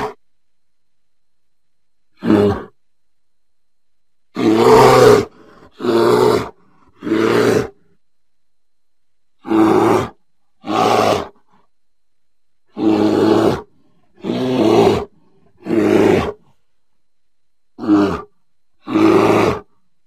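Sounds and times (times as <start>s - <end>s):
deep animal roars: 4.4s - 7.8s, 9.4s - 11.4s, 12.7s - 16.4s, 17.8s - 19.7s.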